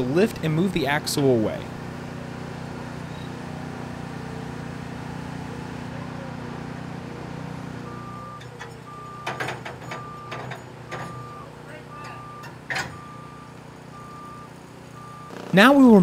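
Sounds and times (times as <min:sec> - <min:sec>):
forklift engine running: 0:00.0 - 0:16.0
reversing alarm beeping: 0:07.8 - 0:16.0
metal clanks: 0:08.4 - 0:11.3, 0:12.0 - 0:13.1.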